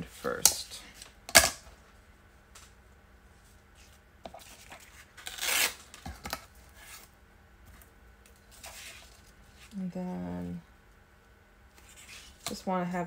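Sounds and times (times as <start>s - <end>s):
paper tearing: 4.9s - 5.9s.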